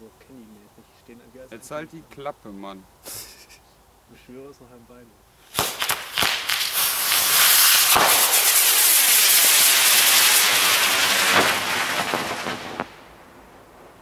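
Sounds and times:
firework hissing: 3.0 - 3.6, 5.3 - 14.0
firework cracks: 5.4 - 14.0.

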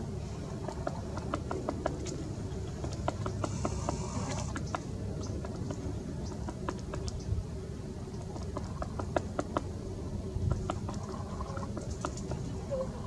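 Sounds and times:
woodpecker tapping on trunk: 0.6 - 7.3, 8.2 - 9.7.

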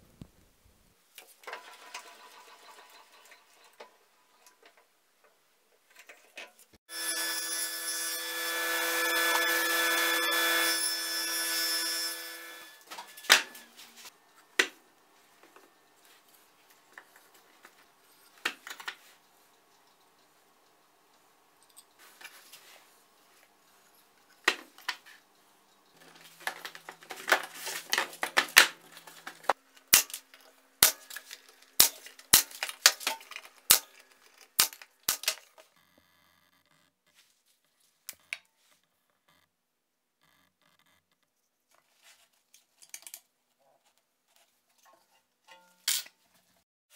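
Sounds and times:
table saw ripping wood: 6.9 - 14.1.

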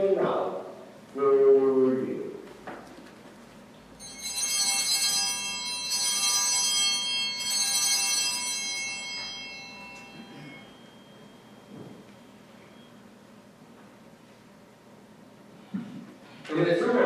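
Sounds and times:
altar bells ringing: 4.0 - 13.0.

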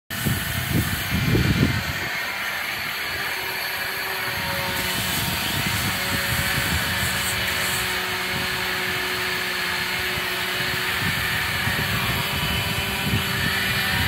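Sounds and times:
power equipment whirring: 0.1 - 14.0.

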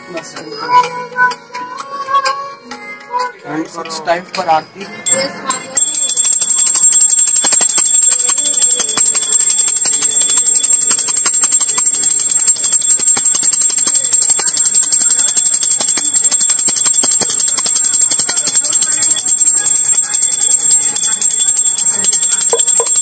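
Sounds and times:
hand bell ringing rapidly: 5.1 - 23.0.

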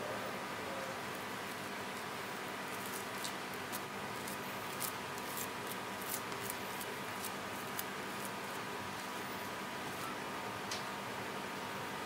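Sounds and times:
spatula spreading sticky filling: 1.4 - 9.2.

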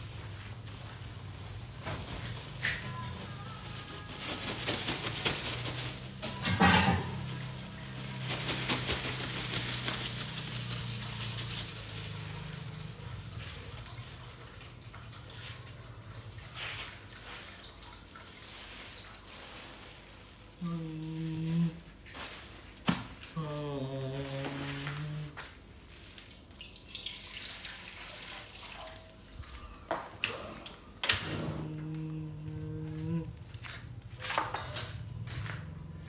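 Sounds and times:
plastic bag crinkling: 0.0 - 14.0, 19.1 - 26.6, 31.6 - 35.0
low steady hum: 19.3 - 26.7, 29.3 - 36.0.

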